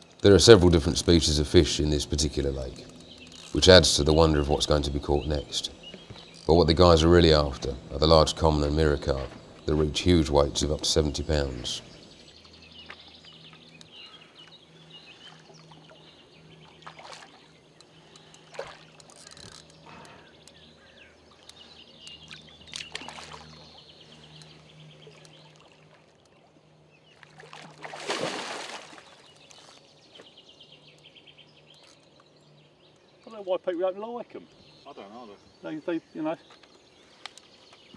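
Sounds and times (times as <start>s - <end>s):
fish splashing at the surface: 16.8s - 17.5s, 18.5s - 18.9s, 22.8s - 23.6s, 27.2s - 29.3s.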